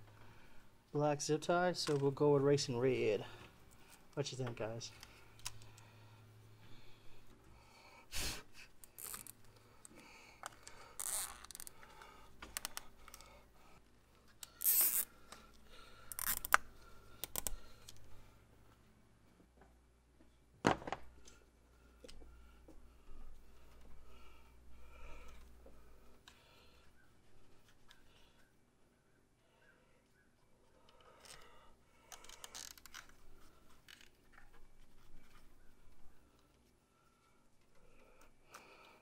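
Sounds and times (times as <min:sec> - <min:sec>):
zip ties ratcheting: 0:08.8 - 0:09.4, 0:10.4 - 0:13.3, 0:14.4 - 0:18.0, 0:32.1 - 0:33.2
hands clicking and scraping on hoses: 0:08.8 - 0:18.8, 0:30.3 - 0:39.0.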